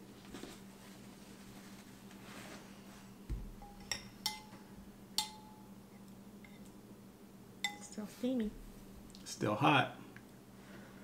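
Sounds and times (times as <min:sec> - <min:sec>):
spoons clinking on ceramic bowls: 0:03.6 - 0:05.7, 0:07.6 - 0:07.9.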